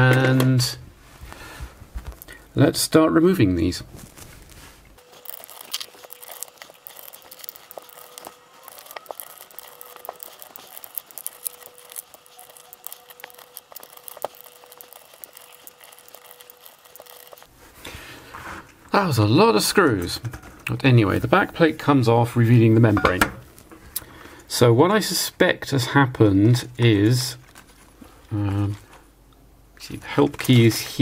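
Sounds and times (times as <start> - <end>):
screwdriver clicks and scrapes: 5.0 - 17.5.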